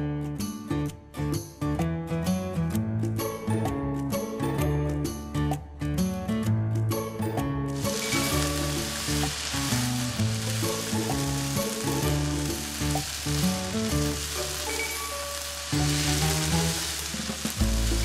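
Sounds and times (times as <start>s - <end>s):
background music: 0.0s - 18.0s
sauce sizzling in a wok: 7.7s - 18.0s.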